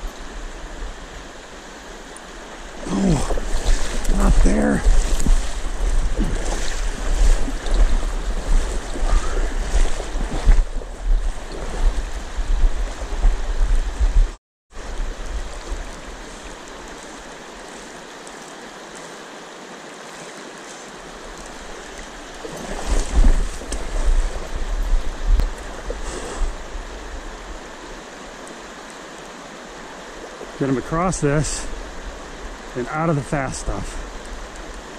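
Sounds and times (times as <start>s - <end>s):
river rushing over riffle: 0.0s - 34.9s
low rumble on microphone: 2.8s - 16.0s.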